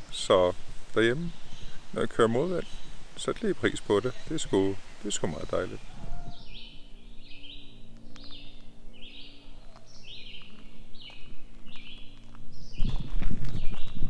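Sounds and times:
songbird singing two-part phrase: 1.2s - 10.4s.

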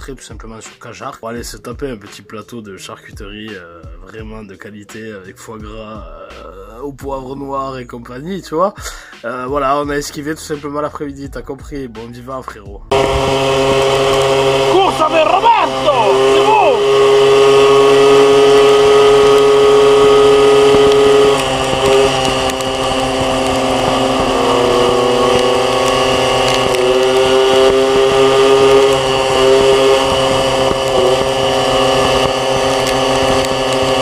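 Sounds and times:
moped engine running: 12.9s - 34.0s.

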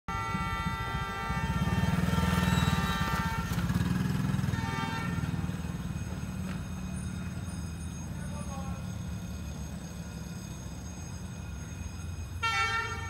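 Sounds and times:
motorbike engine passing by: 0.2s - 6.7s.

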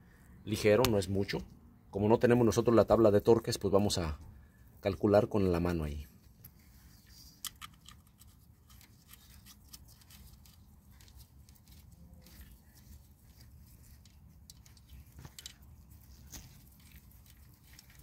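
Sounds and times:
gloved hand rubbing engine parts: 5.6s - 18.0s.

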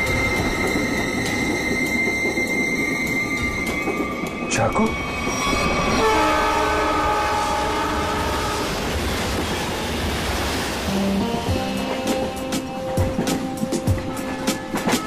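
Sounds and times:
music: 0.0s - 6.8s, 10.9s - 15.0s
train wheels running on track: 0.0s - 15.0s
train horn: 5.7s - 8.8s.

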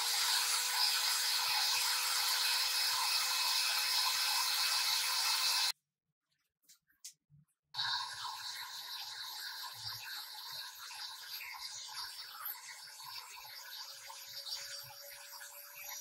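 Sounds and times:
electric hand mixer whirring: 0.0s - 5.8s.

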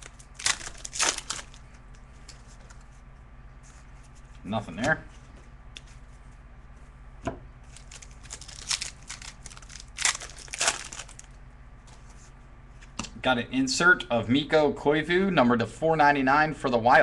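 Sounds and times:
foil wrapper tearing and crinkling: 0.0s - 1.6s, 7.7s - 11.3s.

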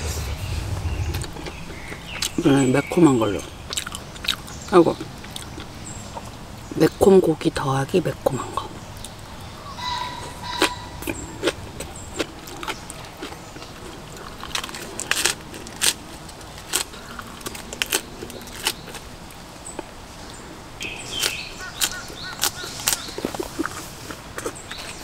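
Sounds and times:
person chewing food: 3.7s - 6.4s, 9.9s - 19.9s, 21.2s - 25.0s.

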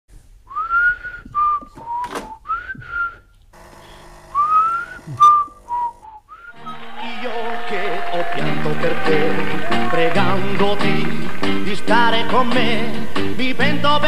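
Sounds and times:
person whistling a melody: 0.5s - 3.3s, 4.4s - 10.4s.

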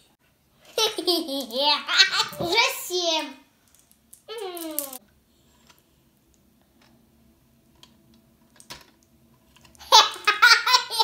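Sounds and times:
child laughing loudly: 0.7s - 2.4s, 9.8s - 11.0s.

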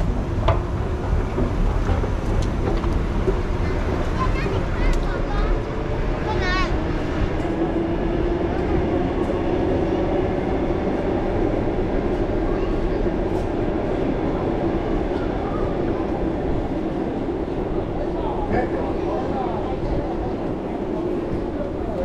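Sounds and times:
train rumbling: 0.0s - 22.0s.

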